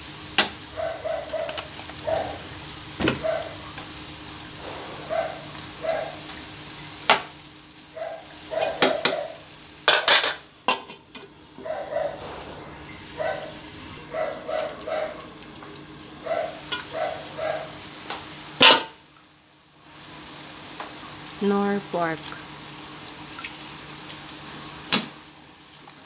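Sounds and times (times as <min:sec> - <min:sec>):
faint sizzle: 0:00.0 - 0:26.0
metal pan lid clattering: 0:09.8 - 0:11.0.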